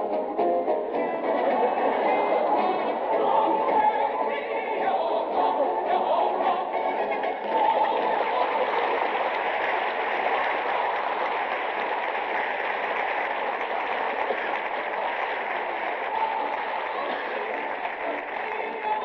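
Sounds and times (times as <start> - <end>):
audience applauding: 7.0 - 19.0.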